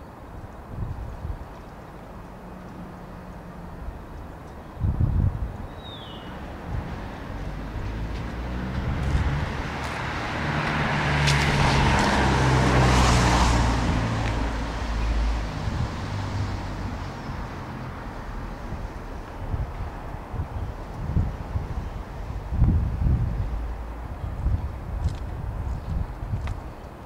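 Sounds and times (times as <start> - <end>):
vehicle passing by: 6.4 - 24.6.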